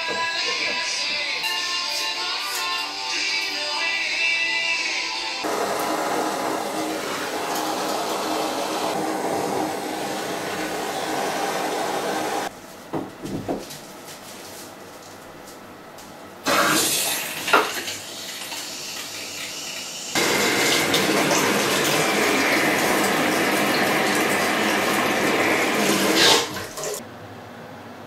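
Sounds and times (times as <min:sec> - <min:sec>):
water gushing into plastic bucket: 0:05.5 - 0:12.5, 0:20.2 - 0:27.0.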